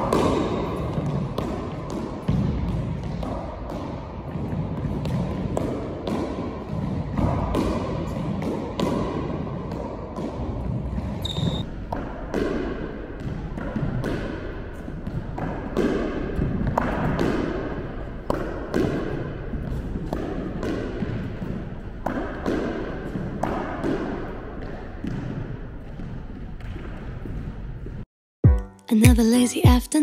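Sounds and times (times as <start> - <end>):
squash ball knocks: 0.0 - 28.0
shoe squeak: 11.2 - 11.7.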